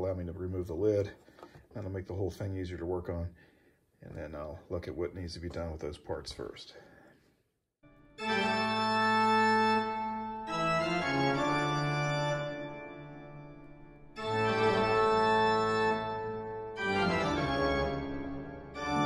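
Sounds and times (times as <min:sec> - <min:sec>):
held organ chords: 0:07.8 - 0:19.0.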